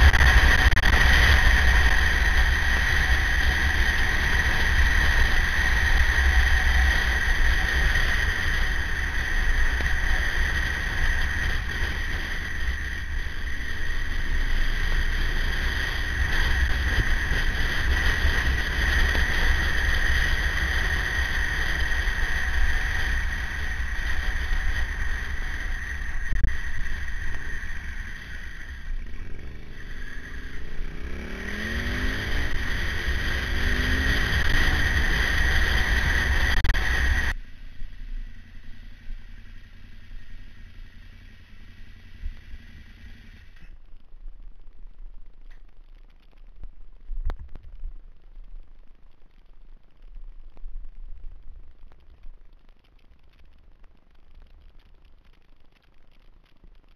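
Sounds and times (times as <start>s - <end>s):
motorcycle engine: 0.0s - 43.8s.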